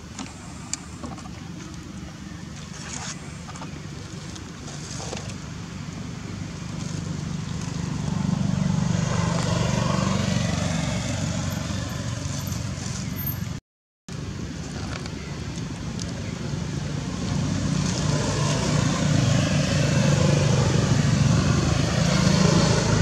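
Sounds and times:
motor engine passing by: 6.7s - 13.4s, 17.0s - 23.0s.

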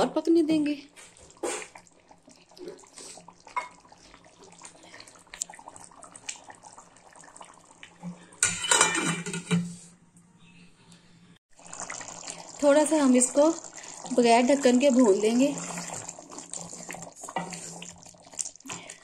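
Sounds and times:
gravy simmering and bubbling in a pot: 0.0s - 9.0s, 11.5s - 19.0s
metal lid clattering on pot: 8.4s - 9.8s.

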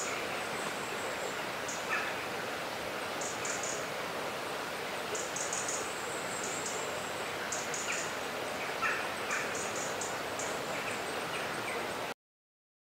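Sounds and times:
steady hiss: 0.0s - 12.1s
lower bird calls: 3.1s - 3.9s, 5.1s - 12.0s
birds chirping: 3.2s - 3.9s, 5.0s - 12.0s.

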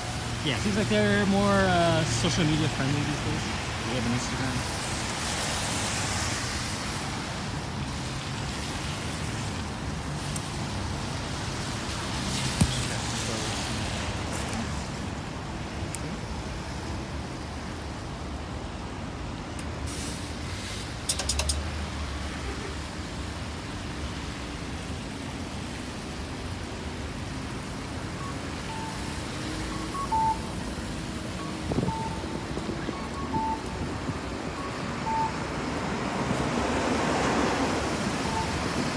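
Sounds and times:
traffic passing: 0.0s - 38.9s
short high beeps: 28.2s - 30.6s, 31.3s - 33.8s, 34.6s - 35.4s, 38.2s - 38.6s.

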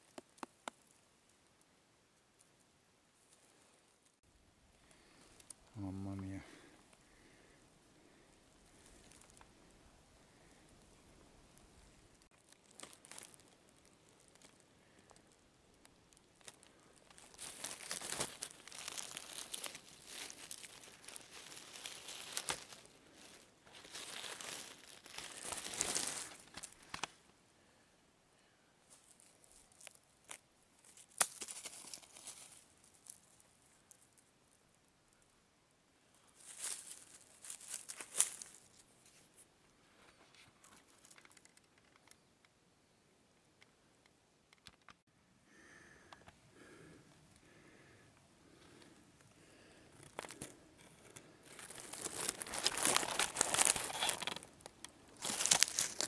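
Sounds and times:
dry leaves and soil rustling: 3.2s - 27.2s, 28.8s - 34.3s, 36.1s - 42.3s, 49.5s - 56.0s
footsteps through leaf litter: 17.2s - 26.7s, 31.0s - 33.2s, 36.4s - 38.7s, 51.6s - 54.4s, 55.2s - 56.0s.

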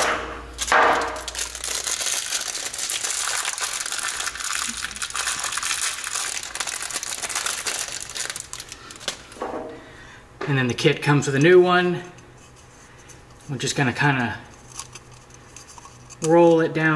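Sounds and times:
plastic packaging crinkling: 0.6s - 9.4s.

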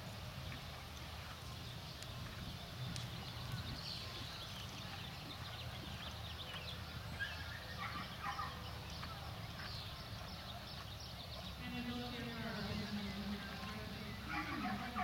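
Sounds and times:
horse hoofbeats on sand: 8.2s - 13.4s.

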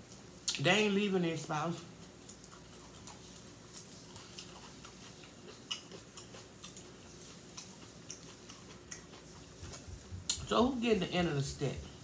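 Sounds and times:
chewing crisp lettuce: 1.4s - 10.8s.

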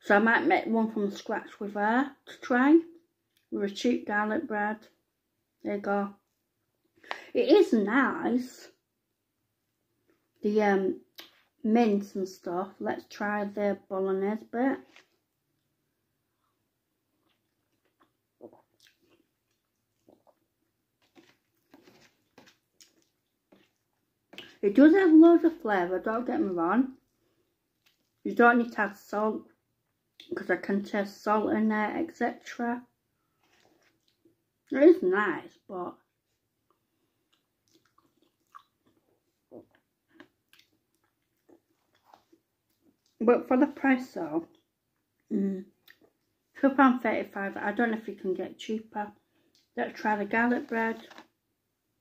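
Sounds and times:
person chewing: 16.4s - 24.6s, 33.2s - 34.3s, 36.6s - 43.2s.

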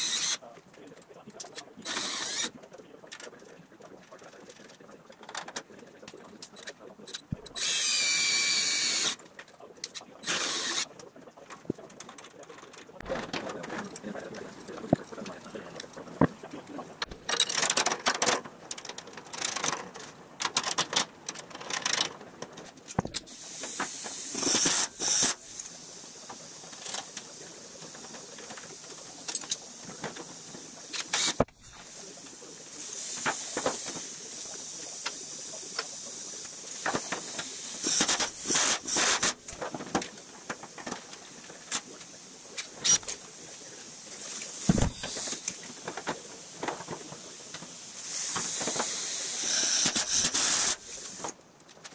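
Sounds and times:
rivet gun hissing: 0.0s - 0.4s, 23.3s - 27.3s, 29.4s - 32.2s, 32.8s - 39.6s, 44.4s - 45.7s, 47.9s - 51.3s.

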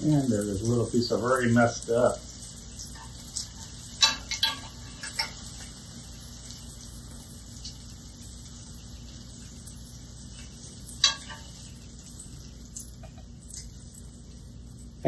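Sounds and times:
faint sizzle: 0.0s - 15.0s
utensils clinking on skillet: 0.1s - 15.0s.

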